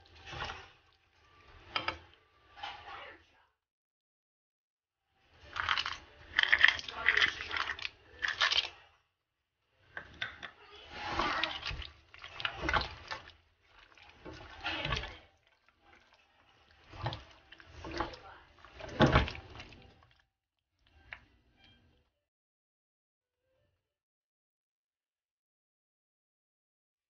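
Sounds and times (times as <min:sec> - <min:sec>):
spatula scraping and clattering in pan: 0:00.0 - 0:02.9, 0:09.9 - 0:20.0.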